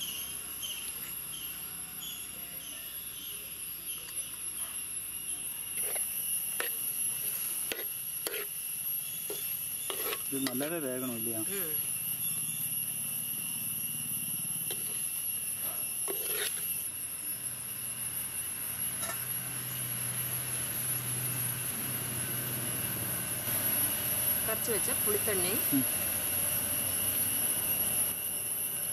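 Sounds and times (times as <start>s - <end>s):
crickets buzzing: 0.0s - 28.9s
ladle scraping clay pot: 5.8s - 8.6s, 9.3s - 10.6s, 14.7s - 15.1s, 16.0s - 16.8s.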